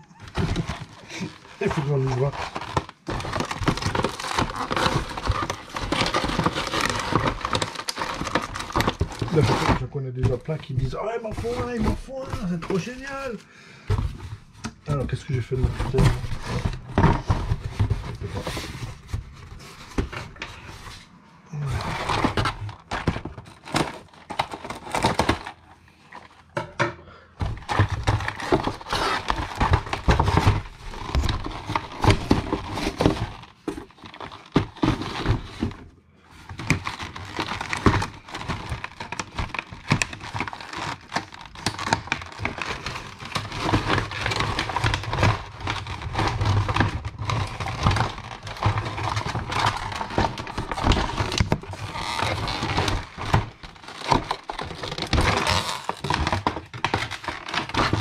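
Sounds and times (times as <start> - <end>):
wrapping crinkling: 0.0 - 13.4, 27.6 - 35.7, 36.4 - 58.0.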